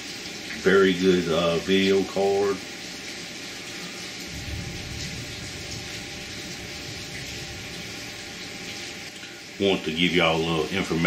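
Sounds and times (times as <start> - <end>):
low rumble: 4.3 - 8.2.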